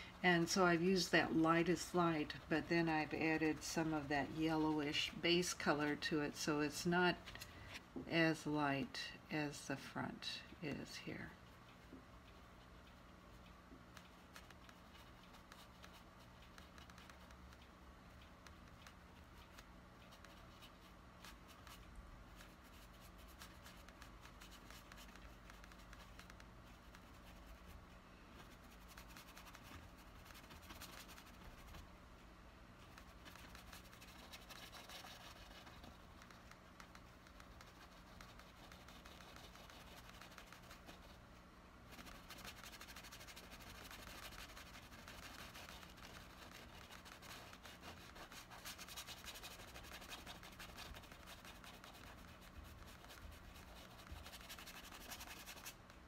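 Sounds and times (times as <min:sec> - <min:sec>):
paintbrush scratching on canvas: 0:11.8 - 0:17.6, 0:18.4 - 0:31.9, 0:32.8 - 0:41.2, 0:41.9 - 0:55.8.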